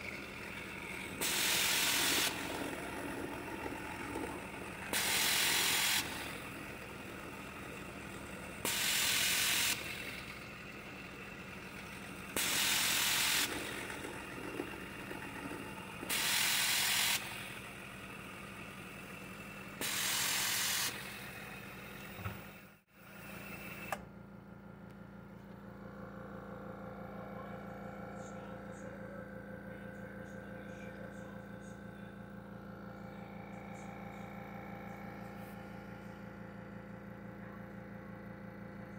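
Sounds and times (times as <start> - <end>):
milling machine cutting steel: 0.0 - 22.3
loud hiss: 1.2 - 2.4, 5.0 - 6.1, 8.7 - 9.8, 12.4 - 13.5, 16.1 - 17.2, 19.8 - 21.0.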